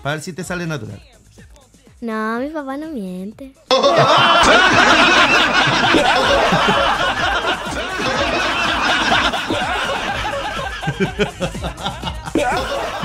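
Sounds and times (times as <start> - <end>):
people laughing and chuckling: 3.7 - 13.0.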